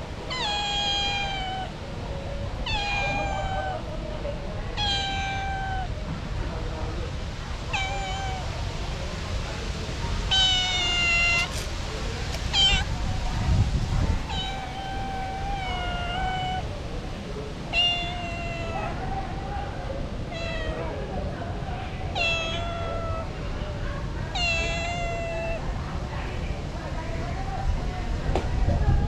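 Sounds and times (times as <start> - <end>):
cat meowing: 0.3 - 3.9, 4.7 - 6.0, 7.6 - 8.6, 10.2 - 13.2, 14.1 - 16.8, 17.6 - 19.5, 20.2 - 21.1, 22.0 - 23.4, 24.3 - 25.7.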